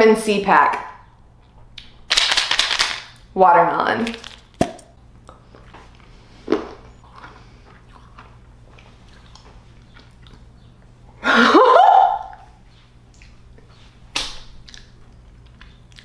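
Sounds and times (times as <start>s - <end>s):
person chewing crunchy tablet: 4.1s - 10.9s, 14.6s - 16.0s.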